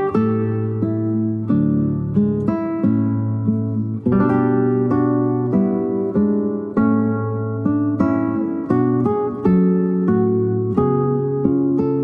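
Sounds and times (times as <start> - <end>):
acoustic guitar plucking: 0.0 - 12.0.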